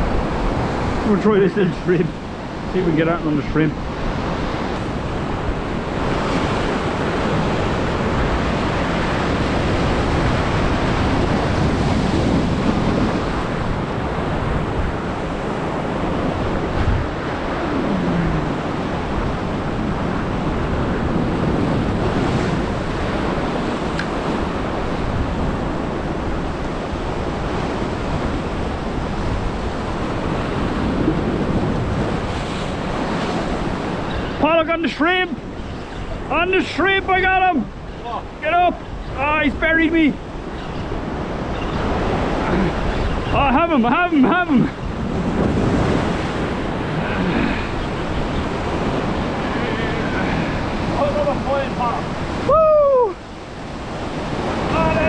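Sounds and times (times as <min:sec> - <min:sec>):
wind on microphone: 0:00.0 - 0:01.1, 0:02.0 - 0:34.4, 0:44.6 - 0:55.0
sea surf breaking: 0:00.0 - 0:55.0.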